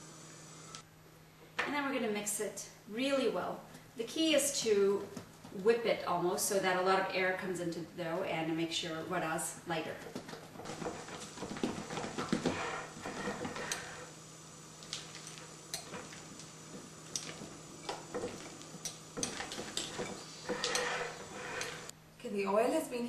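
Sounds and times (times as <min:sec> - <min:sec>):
spatula scraping and tapping glass: 0:10.6 - 0:14.0, 0:14.9 - 0:21.9
spatula beating batter in glass bowl: 0:15.0 - 0:21.9.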